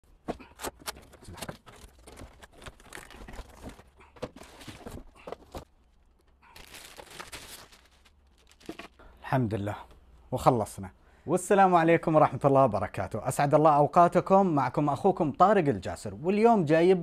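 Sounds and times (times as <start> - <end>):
plastic bag rustling: 1.0 - 9.0.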